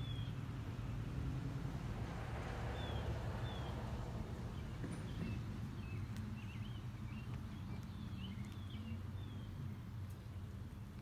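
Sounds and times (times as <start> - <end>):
small birds chirping: 0.0 - 0.4, 4.5 - 11.0.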